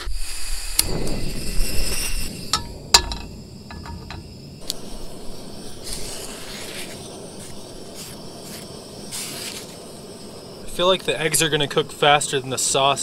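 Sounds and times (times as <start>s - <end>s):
butter sizzling in pan: 0.1s - 13.0s
low steady hiss: 0.9s - 13.0s
skillet clanking on stove: 2.6s - 4.3s
light metal clinks: 2.6s - 4.4s.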